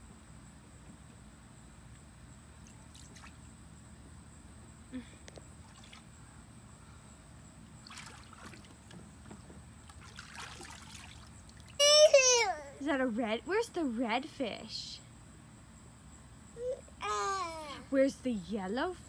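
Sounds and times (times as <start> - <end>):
water splashing and trickling: 2.6 - 3.6, 5.6 - 6.3, 7.7 - 12.4.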